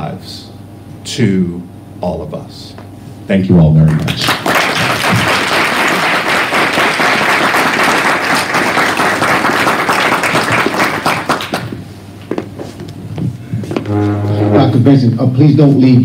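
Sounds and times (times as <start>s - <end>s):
audience applauding: 3.9s - 11.8s.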